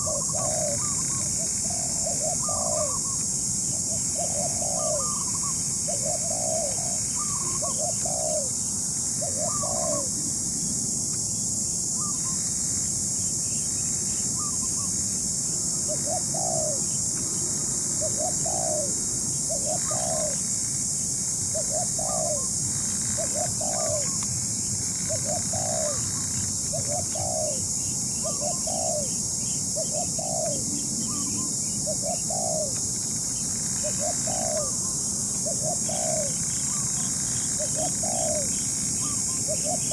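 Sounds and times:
doves cooing: 0.0 - 10.3, 15.8 - 20.5, 21.5 - 24.2, 25.0 - 29.2, 29.8 - 32.8, 33.4 - 39.9
steady high hiss: 0.0 - 39.9.

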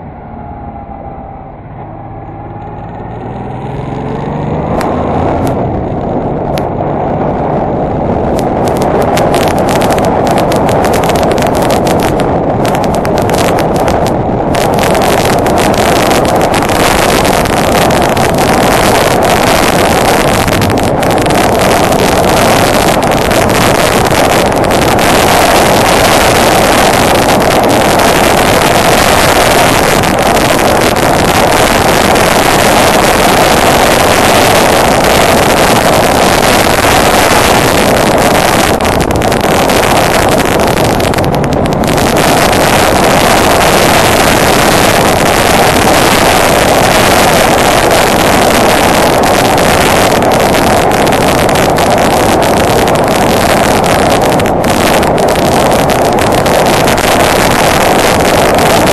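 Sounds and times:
motorcycle engine: 0.0 - 58.9
wind rushing over microphone: 0.0 - 58.9.

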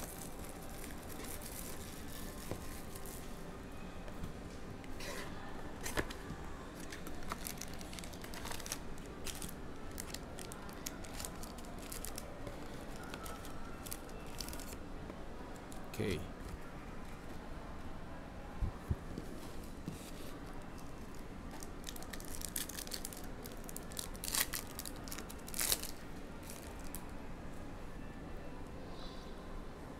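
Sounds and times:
plastic wrap tearing and crinkling: 0.0 - 3.2, 6.8 - 14.8, 21.6 - 27.0
foil packs crackling and clicking: 6.8 - 14.8, 21.6 - 27.0.

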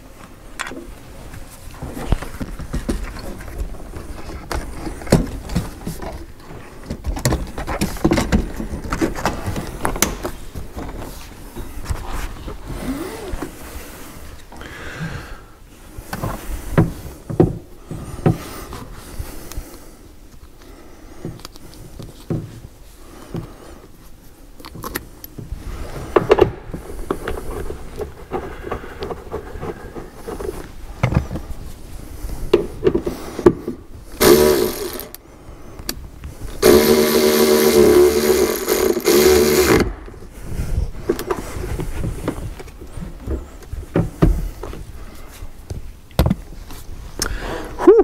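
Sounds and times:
handheld power tool driving fastener: 34.2 - 35.2, 36.6 - 40.1.

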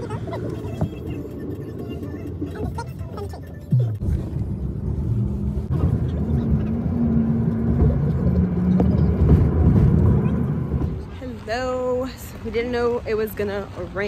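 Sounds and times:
car engine hum: 0.0 - 14.0
road noise inside car: 0.0 - 14.0.

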